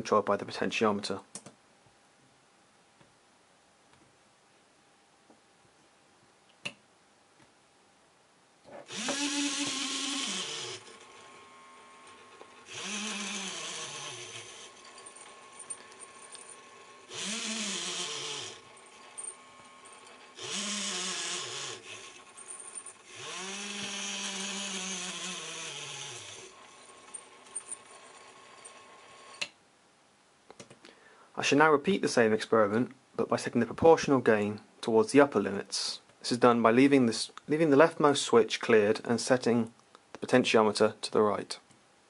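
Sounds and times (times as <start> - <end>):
toy motor whirring whine: 8.8 - 29.5.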